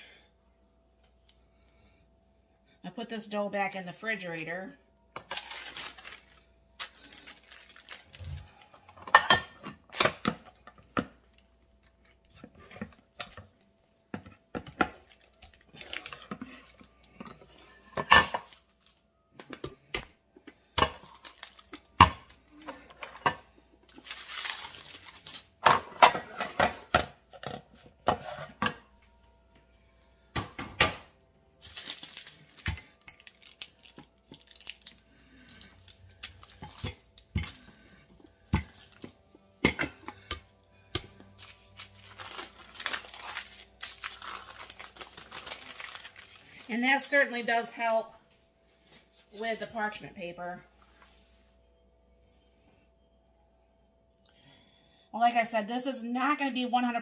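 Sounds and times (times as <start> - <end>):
paper crinkling: 5.2 - 8.8, 21.0 - 21.9, 23.8 - 25.5, 31.6 - 37.9, 41.2 - 47.6.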